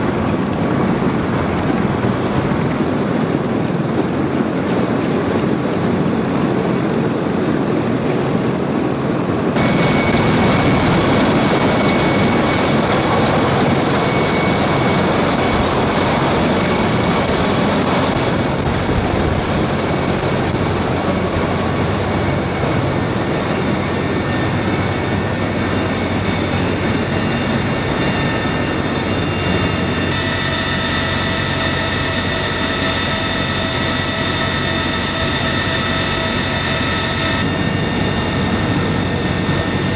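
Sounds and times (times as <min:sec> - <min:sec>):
helicopter rotors and turbines: 0:00.0 - 0:39.9
high whines: 0:09.6 - 0:39.9.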